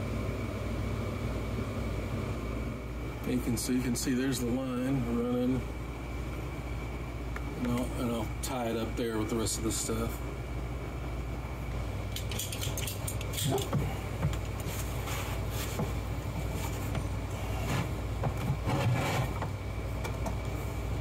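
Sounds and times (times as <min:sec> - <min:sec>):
steady low hum: 0:00.0 - 0:21.0
cords and air hose rustling: 0:12.0 - 0:20.9
clicks and rattles of hose fitting: 0:12.1 - 0:14.7.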